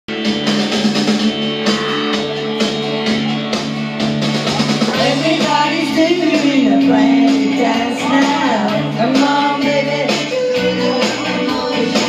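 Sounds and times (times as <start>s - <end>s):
karaoke backing track with drums: 0.1s - 12.0s
woman singing into microphone: 5.0s - 12.0s.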